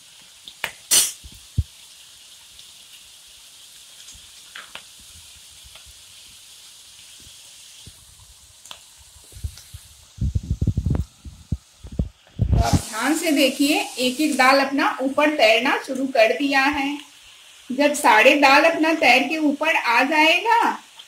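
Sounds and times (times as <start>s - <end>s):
lentils deep-frying in oil: 0.0s - 21.0s.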